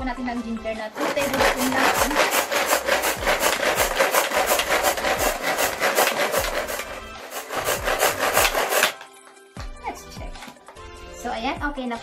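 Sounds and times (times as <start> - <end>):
ginger scraping on hand grater: 0.9 - 9.0.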